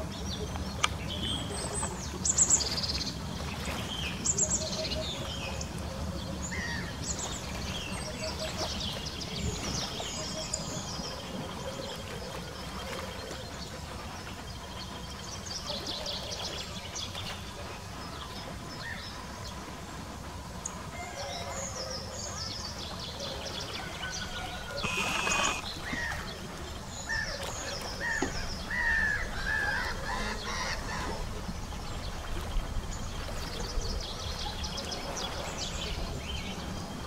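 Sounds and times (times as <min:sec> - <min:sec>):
birds chirping: 0:24.2 - 0:27.2.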